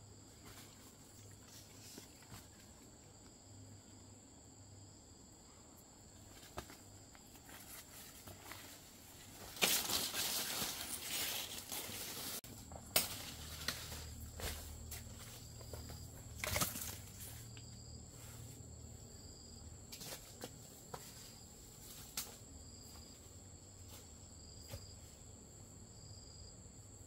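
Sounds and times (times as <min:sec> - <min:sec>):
high insect trill: 0:00.0 - 0:27.0
loud rustling and crinkling: 0:06.2 - 0:17.6.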